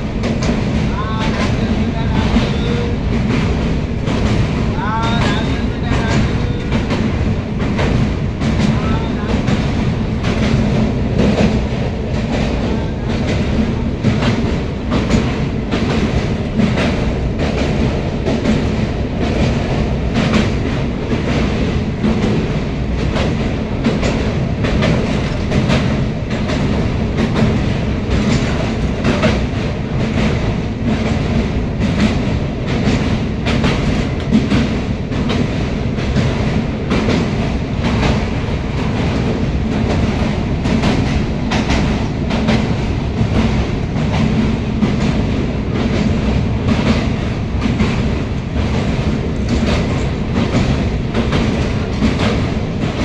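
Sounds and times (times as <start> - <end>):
train wheels rumbling: 0.0 - 53.0
wheels clacking over rails: 0.0 - 53.0.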